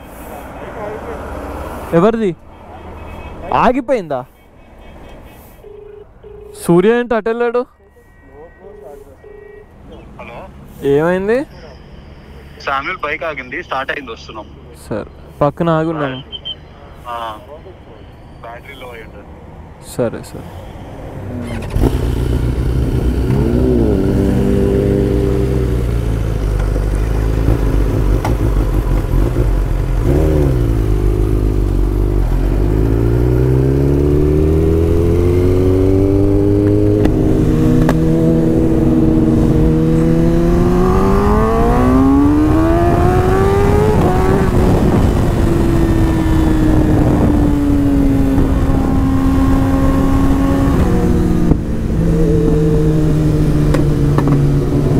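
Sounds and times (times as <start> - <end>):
motorcycle engine revving and accelerating: 21.3 - 54.9.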